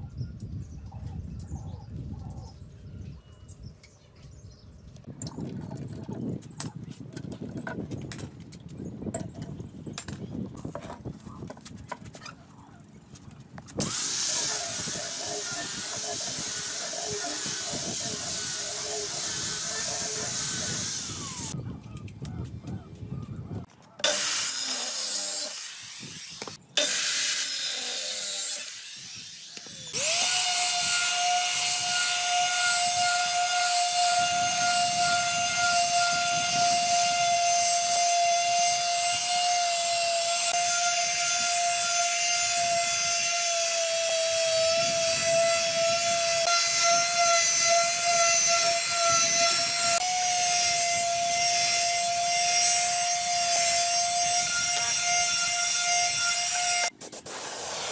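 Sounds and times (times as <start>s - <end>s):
circular saw cutting wood: 13.8s - 21.6s, 24.0s - 57.9s
palm sander whining on wood: 13.8s - 21.6s, 24.0s - 56.9s.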